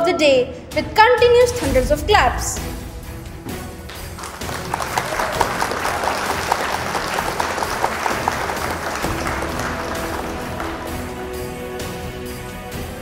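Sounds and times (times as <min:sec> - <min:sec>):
large audience applauding: 0:03.8 - 0:12.0.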